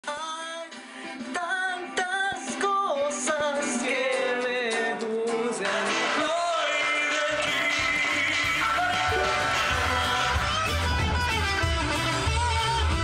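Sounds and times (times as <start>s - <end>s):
electric guitar: 0.0s - 13.0s
man singing high melody: 1.4s - 11.2s.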